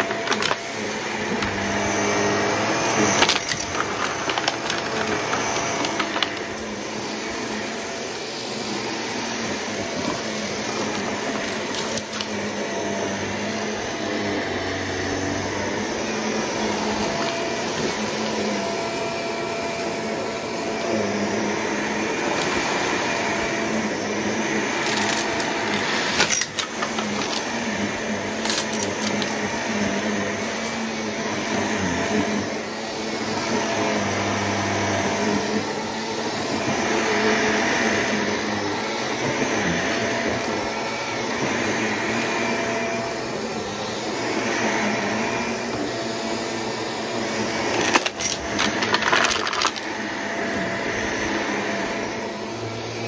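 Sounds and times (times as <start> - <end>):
vacuum cleaner running over carpet: 0.0 - 53.0
debris crackling in vacuum: 2.8 - 6.7, 10.0 - 12.7, 24.7 - 29.4, 47.7 - 50.0.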